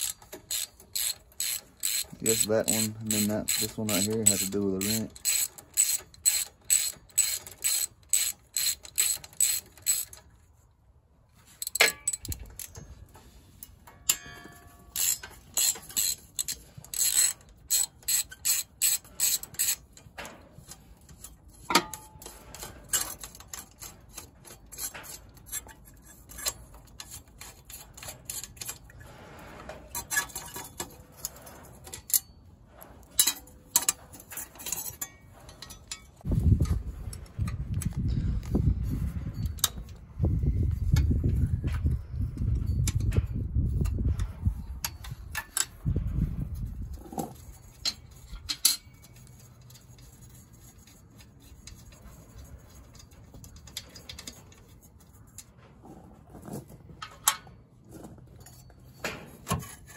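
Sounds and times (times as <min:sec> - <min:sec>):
ratchet wrench clicking: 0:00.0 - 0:10.2, 0:11.6 - 0:12.8, 0:14.9 - 0:19.9.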